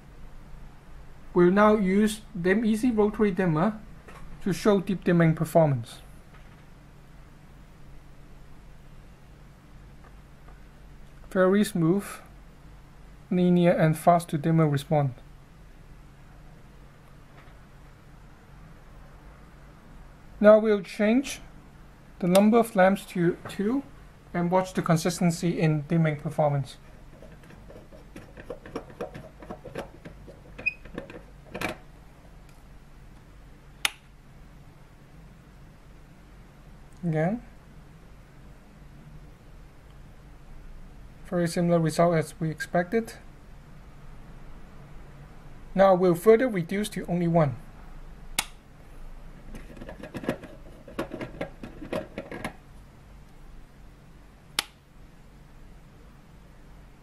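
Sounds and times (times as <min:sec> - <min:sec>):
wall switch click: 0:48.4 - 0:48.6, 0:54.6 - 0:54.8.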